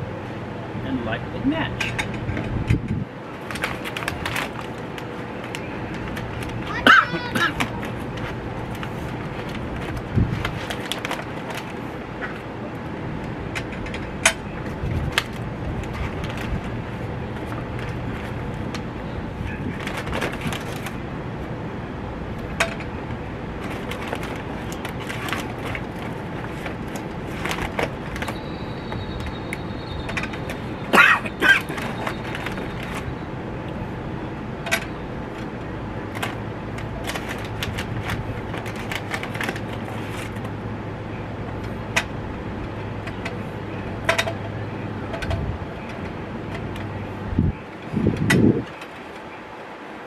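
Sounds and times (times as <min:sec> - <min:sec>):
steady background rumble: 0:00.0 - 0:50.0.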